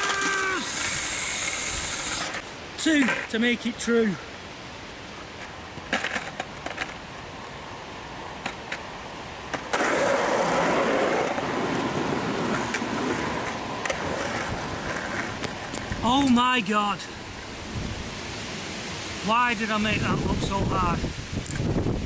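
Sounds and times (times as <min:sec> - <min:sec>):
skateboard wheels rolling on concrete: 0:00.0 - 0:22.0
skateboard clicks at coping: 0:09.5 - 0:16.4.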